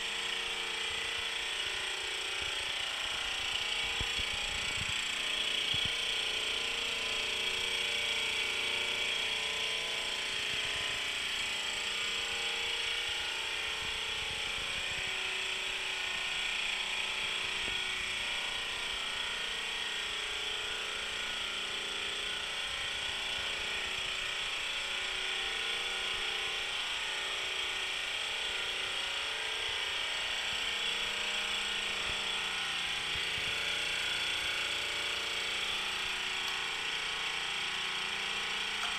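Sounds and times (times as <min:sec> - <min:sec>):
air compressor running: 0:00.0 - 0:38.9.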